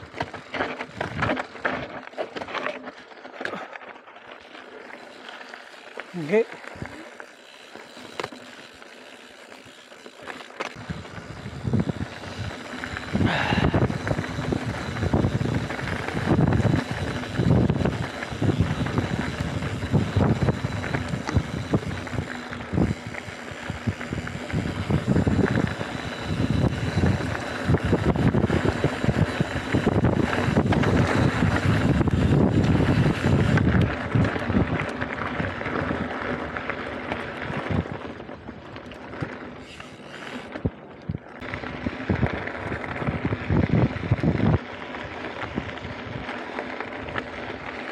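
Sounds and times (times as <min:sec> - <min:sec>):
bike tyre and frame rattle: 0:00.0 - 0:47.9
wind buffeting microphone: 0:10.7 - 0:36.5, 0:40.6 - 0:46.4.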